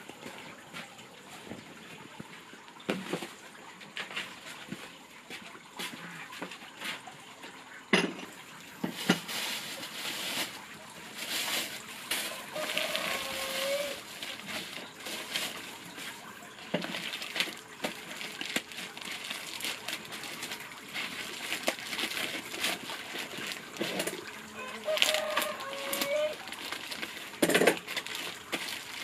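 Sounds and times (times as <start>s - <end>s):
plastic bags crinkling: 8.8s - 29.0s.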